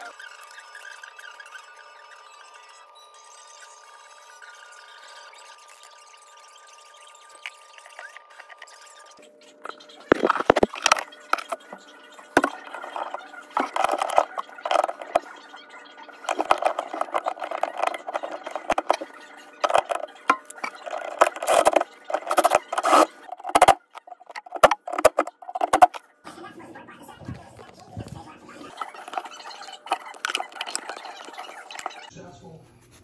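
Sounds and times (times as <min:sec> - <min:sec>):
metal parts clinking and scraping: 0:10.1 - 0:11.7, 0:12.4 - 0:15.3, 0:16.2 - 0:26.0, 0:28.7 - 0:32.1.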